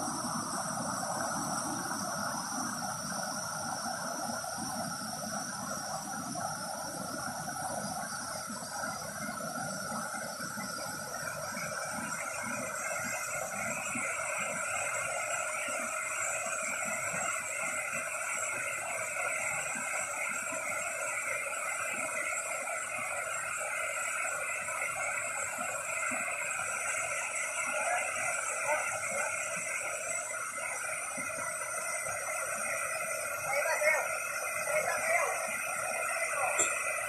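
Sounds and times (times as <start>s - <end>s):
waterfall cascading over rocks: 23.0s - 37.0s.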